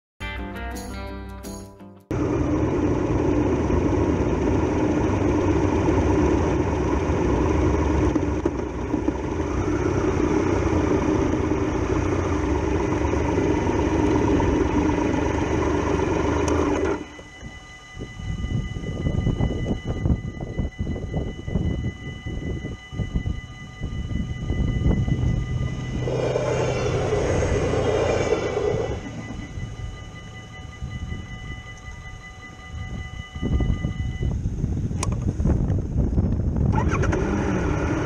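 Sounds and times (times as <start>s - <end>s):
motorcycle engine running: 2.1s - 17.2s, 24.6s - 30.8s
level crossing warning bells: 9.2s - 34.5s
wind noise on microphone: 17.0s - 38.0s.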